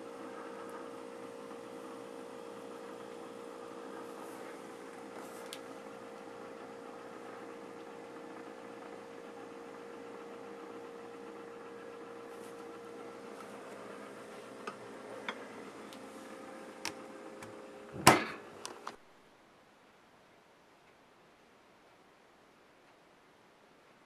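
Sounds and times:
refrigerator humming: 0:00.0 - 0:19.1.

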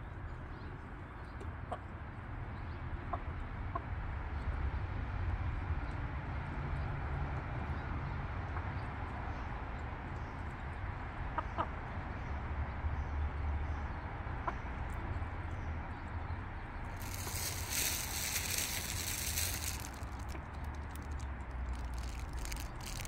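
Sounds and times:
hens pecking feed: 0:17.0 - 0:23.0
hissing rush: 0:17.0 - 0:23.0.

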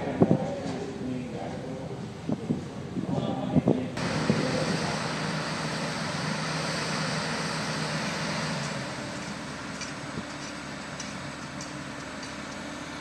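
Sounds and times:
wind noise on microphone: 0:00.0 - 0:05.3
excavator diesel engine running: 0:03.9 - 0:13.0.

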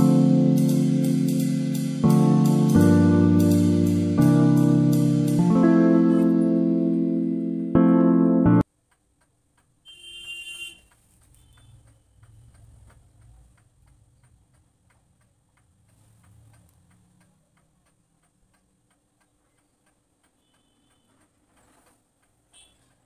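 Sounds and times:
faint steady ticking: 0:08.5 - 0:23.0.

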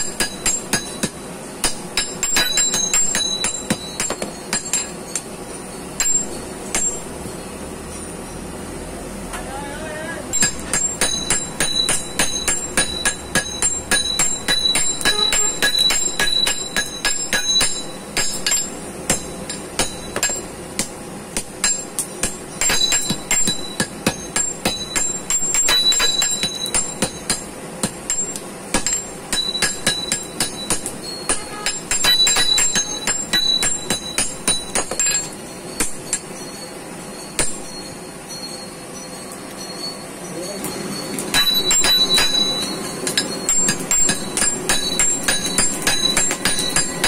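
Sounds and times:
hammers striking iron on anvil: 0:00.0 - 0:07.2, 0:10.3 - 0:36.6, 0:37.4 - 0:37.9, 0:40.6 - 0:47.0.

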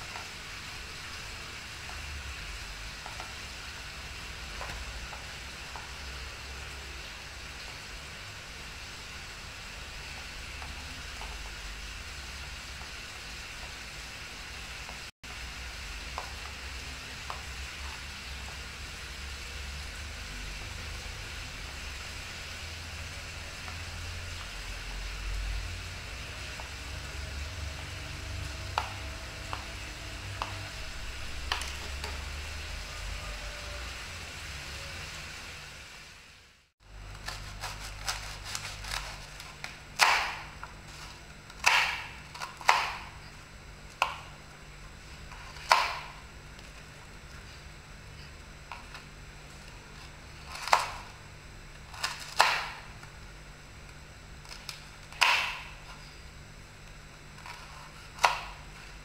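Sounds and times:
steady hiss with low rumble: 0:00.0 - 0:59.0
knife sawing crusty bread: 0:37.1 - 0:40.2.

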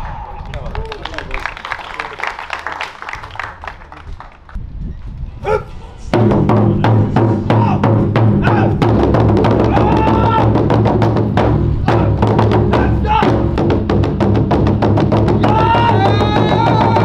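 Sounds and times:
taiko drums struck hard: 0:06.2 - 0:17.0.

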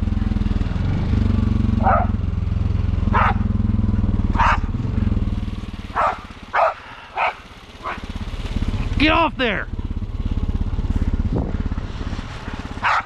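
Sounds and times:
atv engine running: 0:00.0 - 0:13.0
dog barking: 0:01.8 - 0:02.2, 0:03.1 - 0:03.5, 0:04.4 - 0:04.8, 0:05.9 - 0:08.1, 0:12.8 - 0:13.0.

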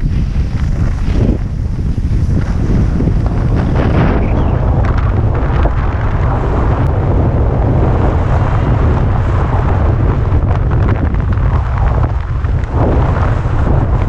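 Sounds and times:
skis scraping packed snow: 0:00.0 - 0:06.8
wind buffeting microphone: 0:00.0 - 0:14.0.

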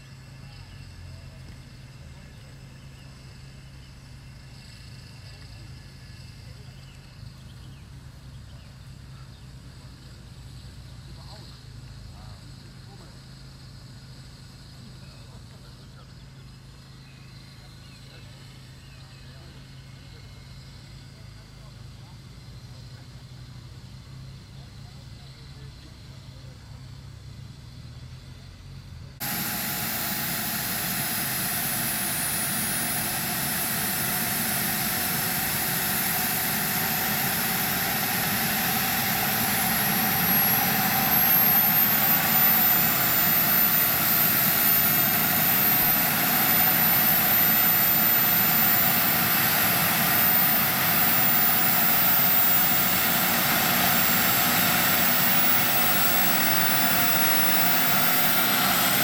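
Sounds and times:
turbine rushing whine: 0:29.2 - 0:59.0.

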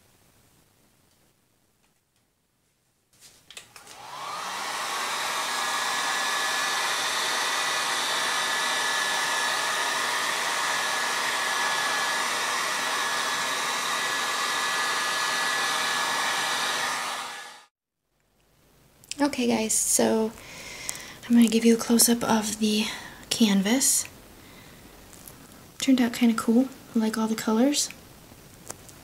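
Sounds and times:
heat gun blowing with whine: 0:03.7 - 0:17.7.

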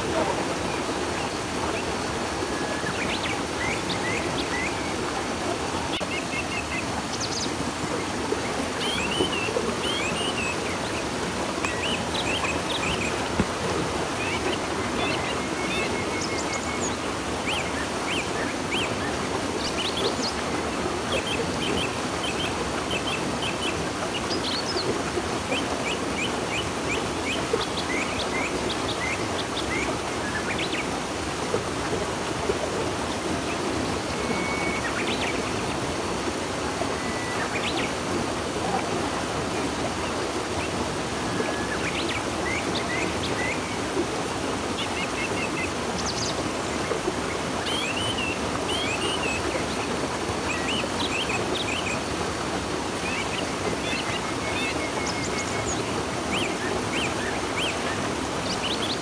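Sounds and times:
small birds chirping: 0:00.0 - 0:31.0
river water running: 0:00.0 - 0:59.0.

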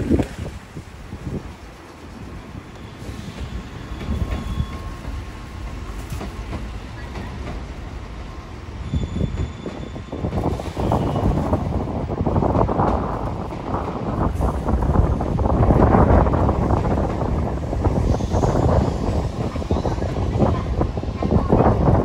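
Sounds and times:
electric train rumbling: 0:00.0 - 0:22.0.

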